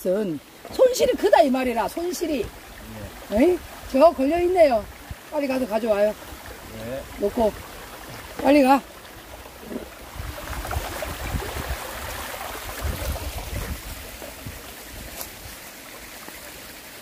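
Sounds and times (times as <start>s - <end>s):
stream trickling over rocks: 0.0s - 17.0s
wind buffeting on microphone: 9.6s - 15.5s.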